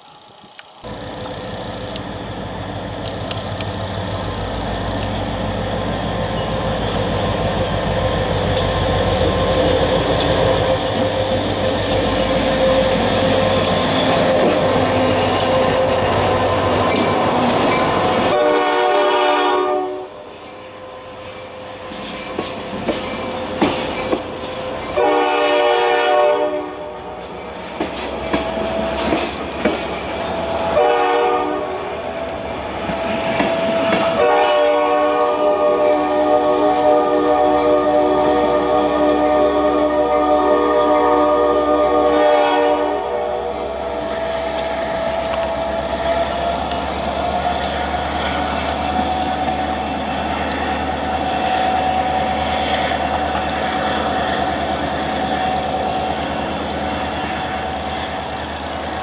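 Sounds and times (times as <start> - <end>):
train wheels clicking over rail joints: 0.0 - 18.5, 21.2 - 25.2, 27.0 - 31.1, 31.8 - 35.8, 43.6 - 59.0
diesel locomotive engine: 0.0 - 59.0
locomotive air horn blasts: 18.2 - 20.3, 25.0 - 27.1, 30.7 - 31.9, 34.1 - 43.7.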